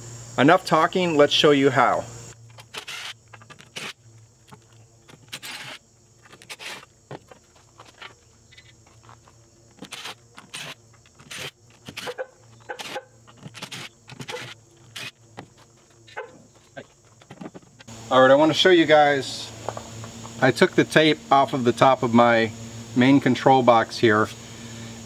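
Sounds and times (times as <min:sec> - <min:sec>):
handling clicks and scrapes: 0:02.3 - 0:17.9
impact driver bursts: 0:02.4 - 0:08.7, 0:09.8 - 0:15.2.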